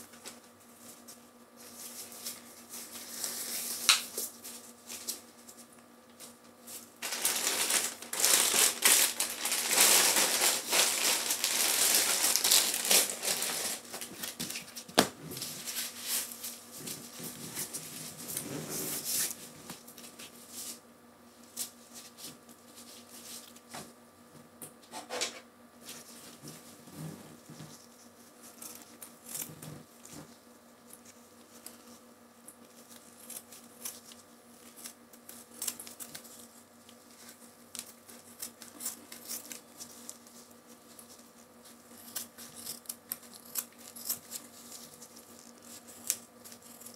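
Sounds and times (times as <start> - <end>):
packaging crinkling: 7.0 - 14.8.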